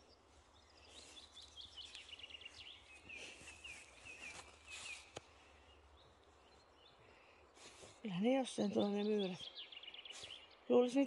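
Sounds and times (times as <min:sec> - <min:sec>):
songbird chirping: 0:00.0 - 0:11.0
soft rustling: 0:00.2 - 0:06.7.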